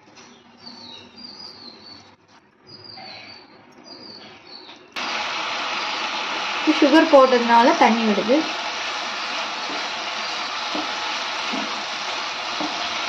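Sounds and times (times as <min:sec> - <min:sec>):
faint kitchen noise: 0:00.0 - 0:13.0
loud steady sizzle in a pan: 0:05.0 - 0:13.0.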